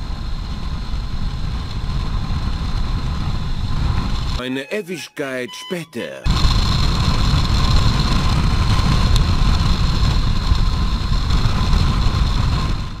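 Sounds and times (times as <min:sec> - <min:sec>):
wind rumble on microphone: 0:00.0 - 0:04.4, 0:06.3 - 0:13.0.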